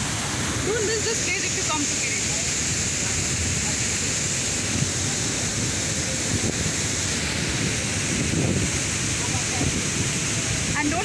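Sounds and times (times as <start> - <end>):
waterfall rushing: 0.0 - 11.0
wind buffeting microphone: 4.6 - 11.0.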